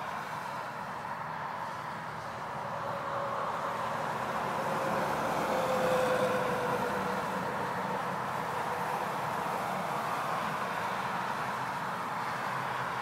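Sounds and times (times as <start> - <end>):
vehicle passing by: 2.8 - 9.8.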